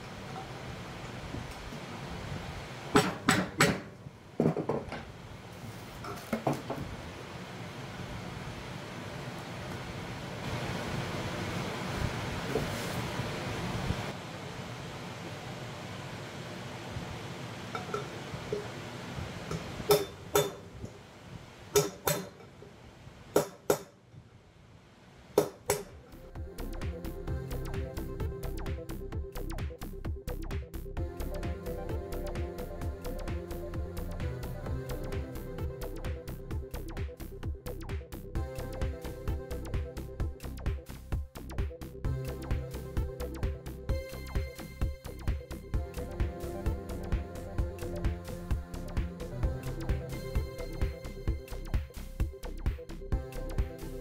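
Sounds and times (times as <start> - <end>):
steady background hiss: 0.0 - 29.0.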